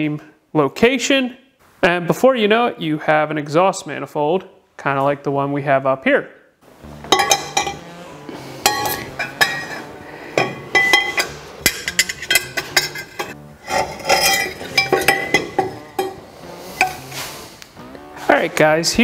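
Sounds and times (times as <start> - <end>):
metal tubes clinking and knocking: 7.1 - 7.8, 8.6 - 17.1.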